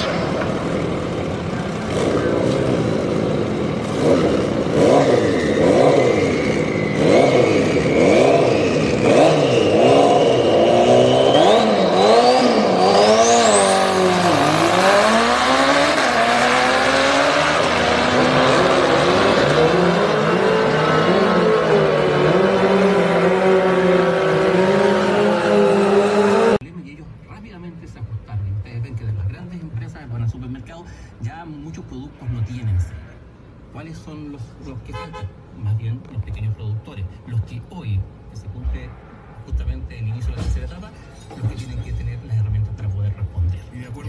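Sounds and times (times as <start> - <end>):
high whine: 0.0 - 3.6
motorcycle engines revving: 0.0 - 26.6.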